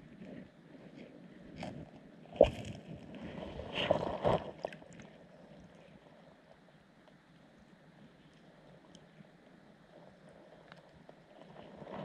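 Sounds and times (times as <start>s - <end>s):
underwater water sloshing and gurgling: 0.0s - 12.0s.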